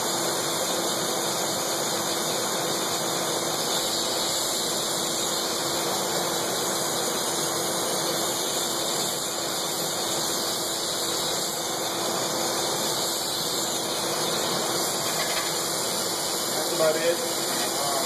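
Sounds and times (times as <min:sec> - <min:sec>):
glass lathe spinning: 0:00.0 - 0:18.0
torch flame hissing: 0:00.0 - 0:18.0.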